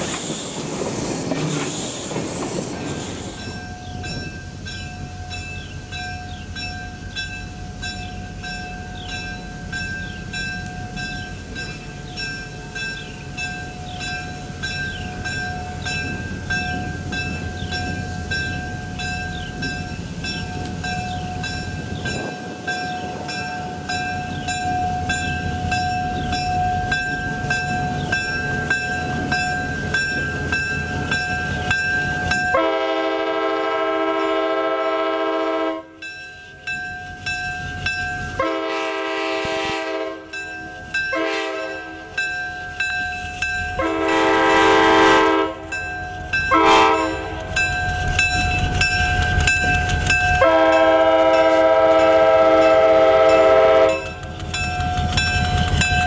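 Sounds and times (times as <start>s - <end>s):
diesel locomotive engine rumbling: 0.0s - 56.0s
locomotive bell ringing: 3.2s - 34.6s, 36.0s - 39.1s, 39.9s - 56.0s
locomotive air horn blasts: 32.5s - 36.0s, 38.4s - 40.4s, 41.1s - 42.0s, 43.8s - 45.7s, 46.5s - 47.5s, 50.4s - 54.2s.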